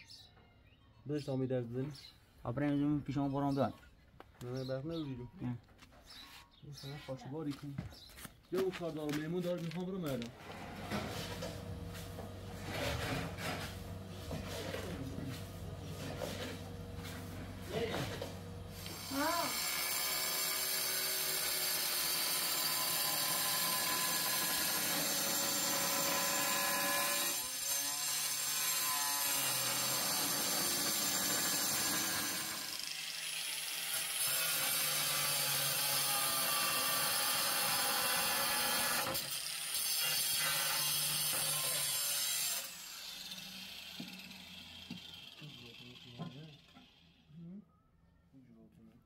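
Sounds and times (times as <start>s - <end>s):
power tool whining: 10.2s - 47.3s.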